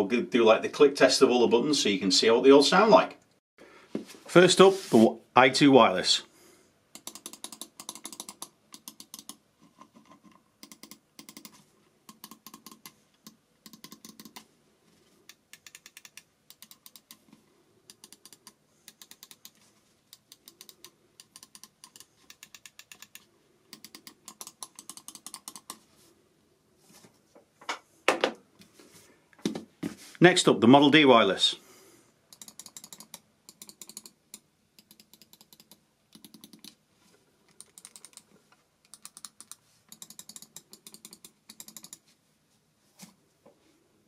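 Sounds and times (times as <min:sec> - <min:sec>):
mouse buttons clicking: 0:10.6 - 0:14.4, 0:17.9 - 0:25.8, 0:32.3 - 0:36.8.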